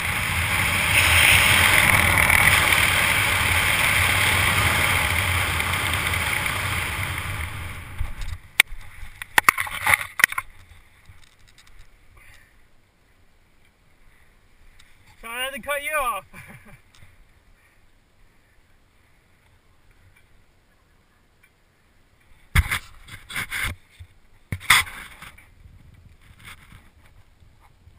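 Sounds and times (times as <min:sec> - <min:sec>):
wind rushing over microphone: 0:00.0 - 0:08.6.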